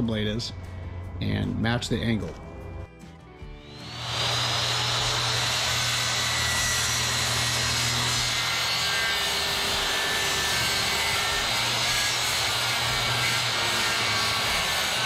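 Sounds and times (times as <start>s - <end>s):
circular saw cutting board: 3.6s - 15.0s.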